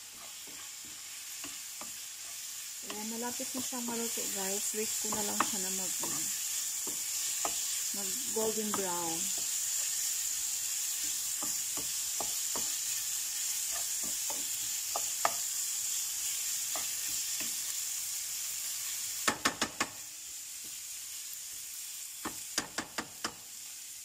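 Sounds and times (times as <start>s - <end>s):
wooden spatula scraping and tapping: 0.0s - 3.7s, 4.9s - 7.9s, 8.6s - 10.1s, 11.0s - 15.5s, 16.6s - 17.6s
chicken sizzling in a pan: 0.0s - 24.0s.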